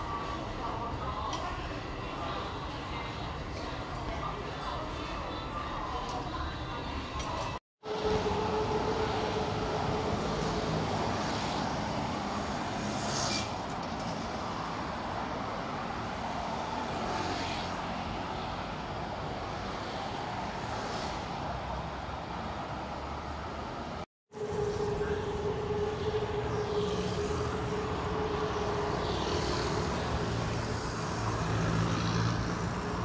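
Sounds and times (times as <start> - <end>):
road traffic passing: 7.8 - 33.0.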